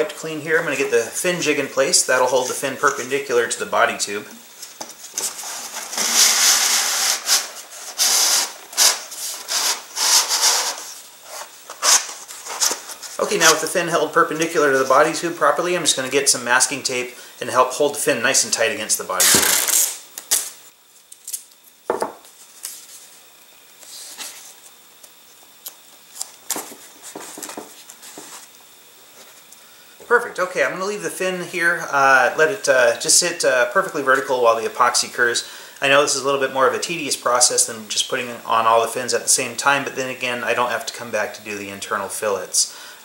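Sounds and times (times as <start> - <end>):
tape rubbing strokes: 4.4 - 13.6, 19.2 - 20.6, 25.6 - 29.5
jig scraping against paper tube: 5.1 - 13.3
masking tape ripping: 5.1 - 13.3, 19.2 - 21.6.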